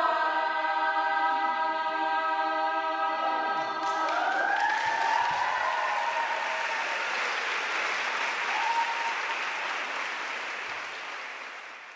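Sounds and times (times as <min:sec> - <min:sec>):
audience applauding: 0:03.8 - 0:11.9.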